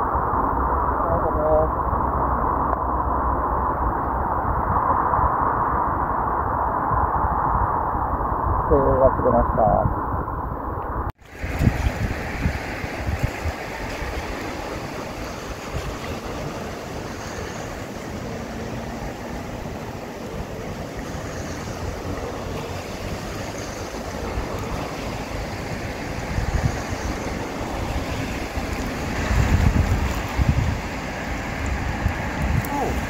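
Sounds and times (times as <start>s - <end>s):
wind buffeting microphone: 0.0s - 33.0s
steady outdoor hiss: 11.2s - 33.0s.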